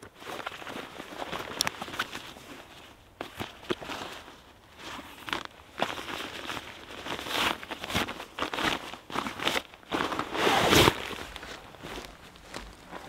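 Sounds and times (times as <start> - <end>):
nylon fabric rustling: 0.0 - 13.0
footsteps on forest floor: 10.9 - 13.0.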